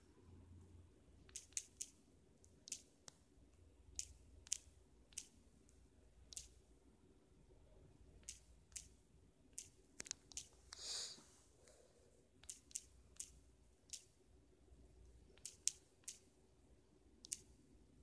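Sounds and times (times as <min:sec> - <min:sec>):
fingertip tapping touchscreen: 0:01.3 - 0:03.2, 0:03.9 - 0:05.4, 0:06.2 - 0:06.6, 0:08.2 - 0:10.8, 0:12.4 - 0:14.2, 0:15.3 - 0:16.3
soft hiss: 0:07.9 - 0:17.7.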